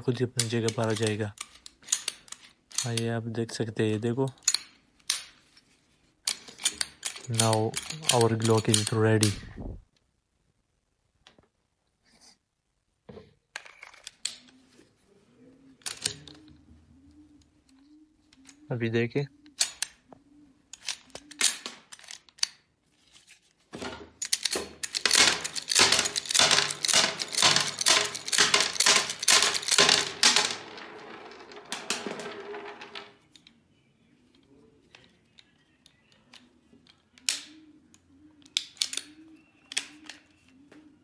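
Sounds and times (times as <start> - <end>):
cartridges clattering on wood: 23.8 - 33.2.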